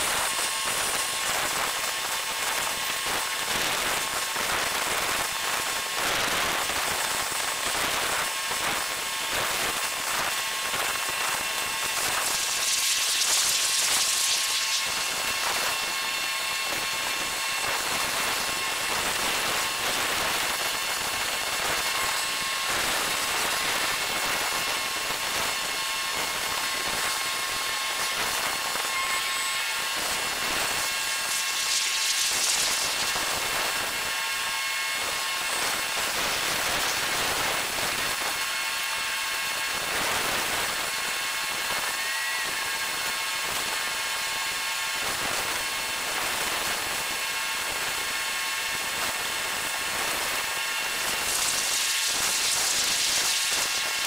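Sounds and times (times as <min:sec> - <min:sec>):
high-pitched whirring hiss: 0:51.0 - 0:54.0.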